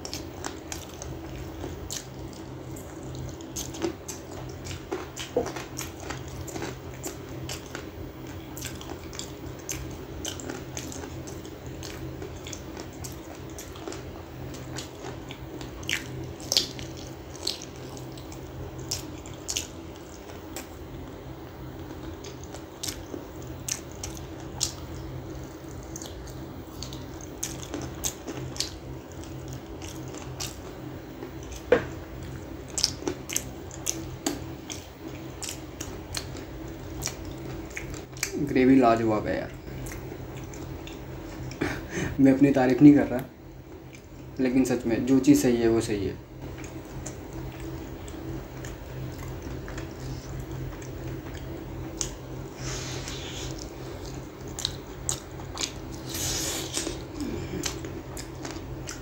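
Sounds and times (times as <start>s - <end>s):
chewing: 0.0s - 38.4s, 39.5s - 41.9s, 43.6s - 44.4s, 46.4s - 59.0s
lip smacks: 32.7s - 36.4s, 37.0s - 38.4s, 53.0s - 59.0s
sucking gravy off fingers: 55.8s - 57.8s.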